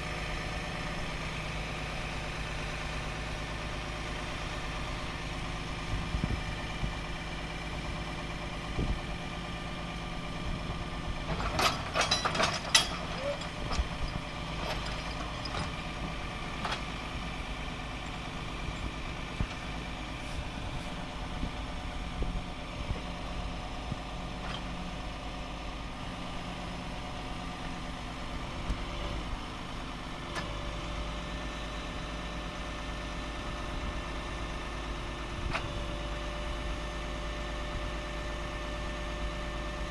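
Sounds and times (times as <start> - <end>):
diesel truck engine idling: 0.0 - 11.9, 12.6 - 39.9
rattling metallic clicks: 11.4 - 15.7.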